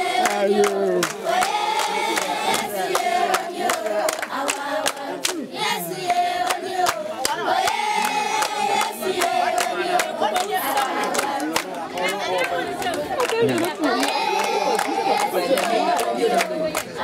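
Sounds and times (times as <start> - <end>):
hand clapping: 0.2 - 5.4, 6.0 - 17.0
children singing: 13.8 - 17.0.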